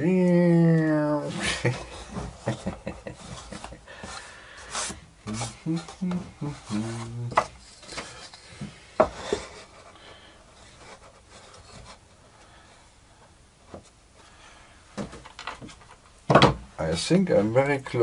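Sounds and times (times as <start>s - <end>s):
faint wood scraping: 1.2s - 16.0s
plywood parts knocking: 15.0s - 16.7s.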